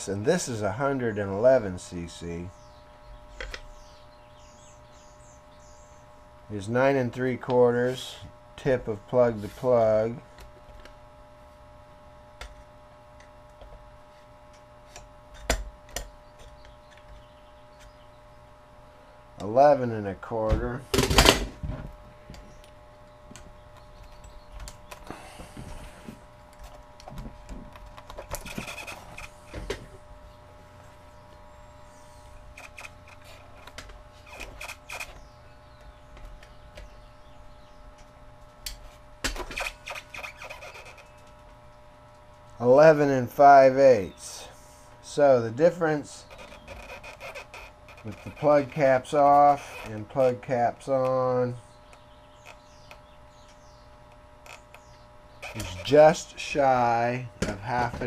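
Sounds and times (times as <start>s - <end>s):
faint electrical hum: 0.0s - 58.0s.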